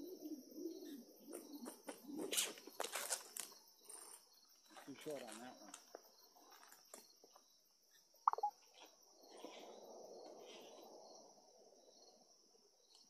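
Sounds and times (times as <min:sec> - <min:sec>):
insects trilling: 0:00.0 - 0:13.0
sharp chirp: 0:08.3 - 0:08.5.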